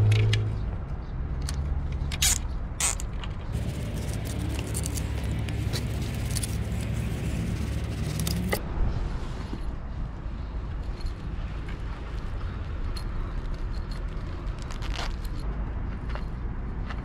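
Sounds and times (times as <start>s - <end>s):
fishing gear scraping and clicking: 1.5s - 8.6s, 10.8s - 15.5s.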